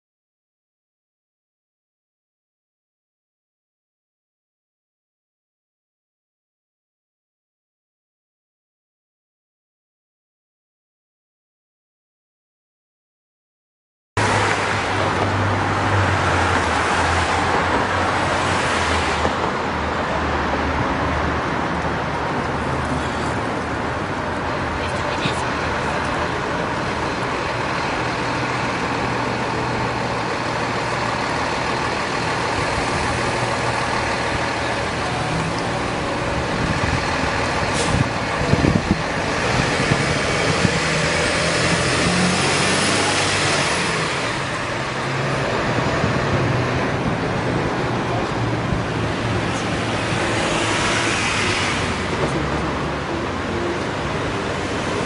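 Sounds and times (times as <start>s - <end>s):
car passing: 14.2s - 55.0s
steady road noise: 14.2s - 55.0s
truck passing: 14.2s - 55.0s.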